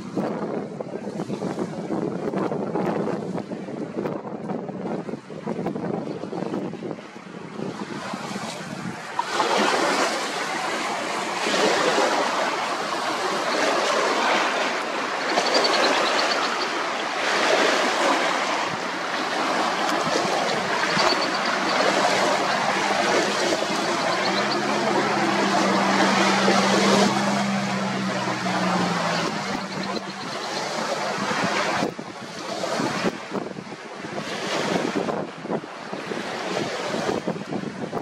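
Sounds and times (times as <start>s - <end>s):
high wind gusting: 0.0s - 38.0s
lake water splashing on shore: 7.5s - 37.4s.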